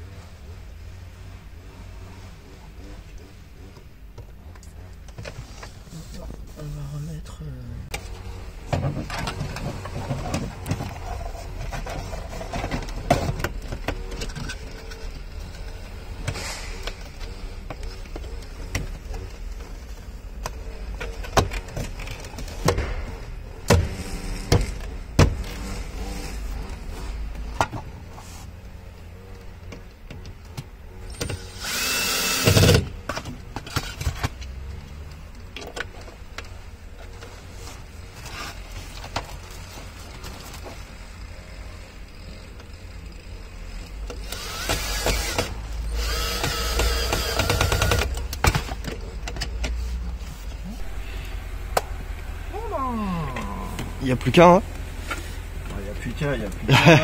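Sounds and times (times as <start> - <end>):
steady low hum: 0.0 - 33.6, 35.2 - 57.0.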